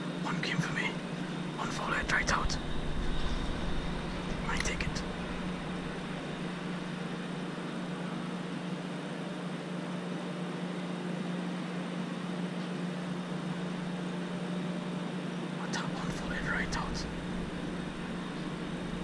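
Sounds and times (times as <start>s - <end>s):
background hiss: 0.3s - 7.6s, 15.6s - 19.0s
low hum: 0.3s - 8.5s, 15.6s - 19.0s.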